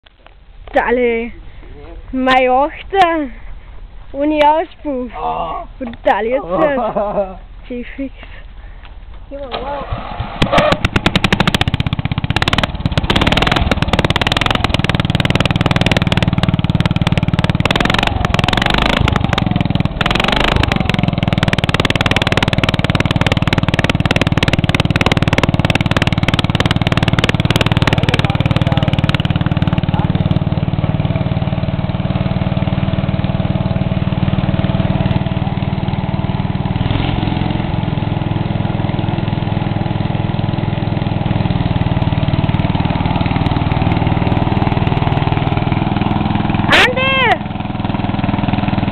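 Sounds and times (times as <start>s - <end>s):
loud engine with open exhaust: 9.8s - 48.9s.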